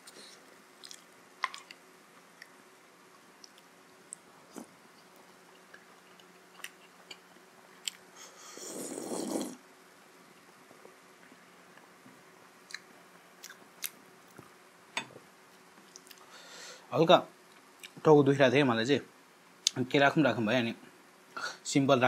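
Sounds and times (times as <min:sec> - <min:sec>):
person chewing with mouth clicks: 0:00.8 - 0:01.8, 0:03.4 - 0:08.1, 0:12.6 - 0:14.0, 0:15.8 - 0:16.2
loud slurp of soup: 0:08.6 - 0:09.6.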